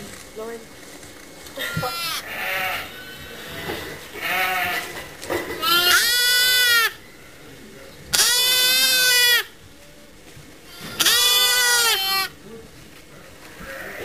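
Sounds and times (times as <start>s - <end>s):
lambs bleating: 1.6s - 5.0s, 5.6s - 7.4s, 8.1s - 9.6s, 10.7s - 12.4s, 13.6s - 14.0s.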